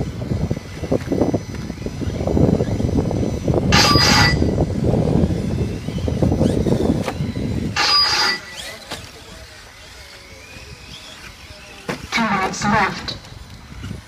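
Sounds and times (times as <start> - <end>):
high-pitched electric whines: 0.0 - 14.0.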